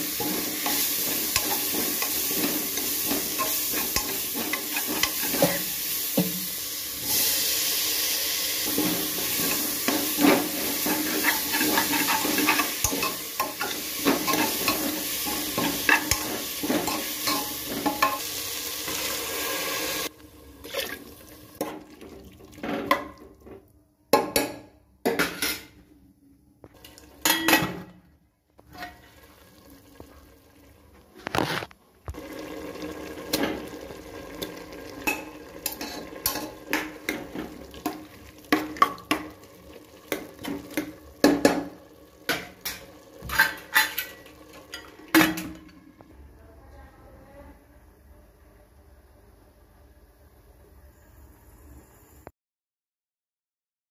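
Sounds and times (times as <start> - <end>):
spoon stirring against pan: 0.0 - 6.6, 8.6 - 19.1, 34.4 - 45.6
potatoes sizzling in pan: 0.0 - 21.6, 28.8 - 45.1.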